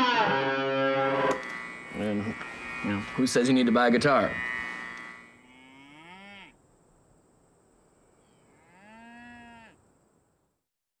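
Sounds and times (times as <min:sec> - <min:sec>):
cow mooing: 0:00.0 - 0:06.6, 0:08.5 - 0:09.8.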